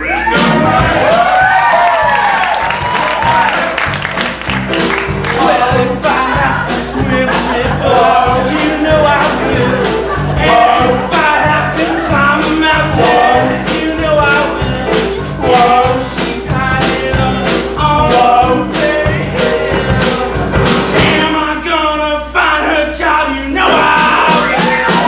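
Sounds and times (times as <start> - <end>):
accompaniment with steady beat: 0.2 - 21.5
men singing in close harmony: 5.3 - 25.0.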